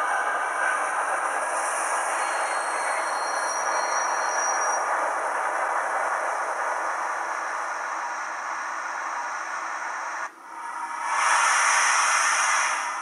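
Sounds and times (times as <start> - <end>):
steady rushing noise: 4.8 - 13.0.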